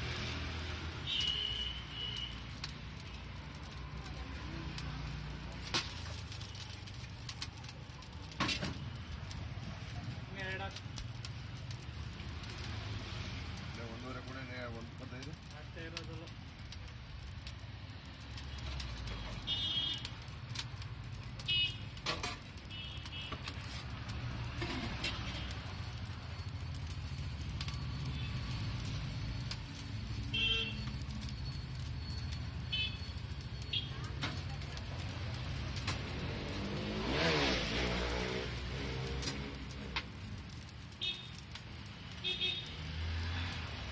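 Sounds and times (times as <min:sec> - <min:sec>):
street traffic rumble: 0:00.0 - 0:43.9.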